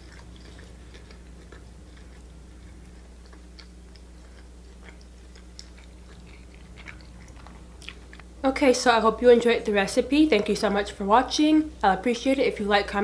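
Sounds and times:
person chewing food: 0.0s - 8.4s
steady low hum: 0.0s - 13.0s.

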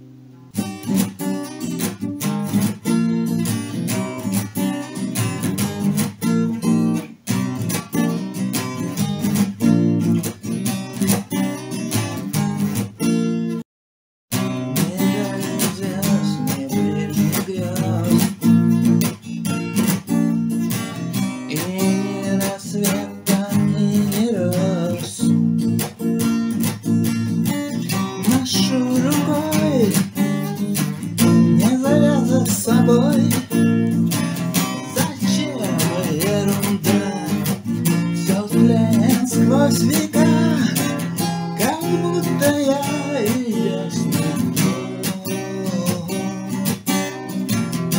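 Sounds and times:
strummed acoustic guitar: 0.0s - 13.6s, 14.3s - 47.9s
person singing: 14.7s - 18.6s, 21.5s - 25.4s, 28.0s - 30.2s, 31.2s - 33.9s, 34.6s - 41.0s, 41.6s - 46.5s.

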